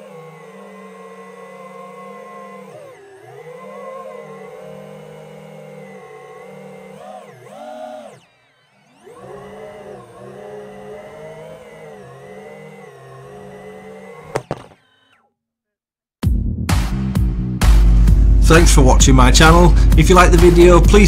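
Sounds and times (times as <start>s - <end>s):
quadcopter motors whining: 0.0s - 15.3s
sharp knocks on road: 14.3s - 14.8s
loud music: 16.2s - 21.0s.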